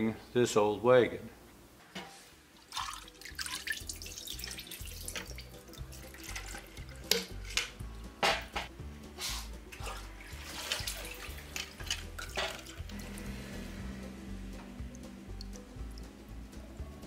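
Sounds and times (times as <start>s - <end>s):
oil splashing and pouring: 2.6s - 7.8s, 9.7s - 13.7s
tin can clinking on metal rim: 11.4s - 12.9s.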